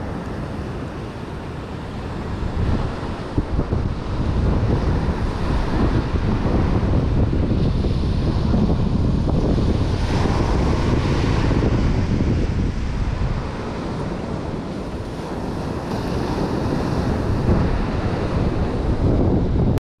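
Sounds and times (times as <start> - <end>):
ocean surf breaking: 0.0 - 19.8
wind buffeting microphone: 0.0 - 19.8.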